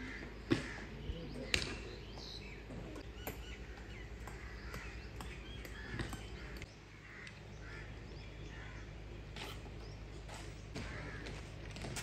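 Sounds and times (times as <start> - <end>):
birds calling: 0.0 - 12.0
boots marching on pavement: 10.2 - 12.0.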